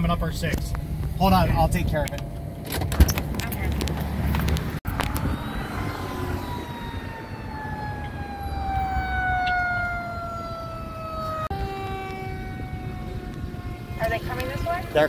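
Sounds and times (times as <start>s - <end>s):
siren wailing: 4.9s - 15.0s.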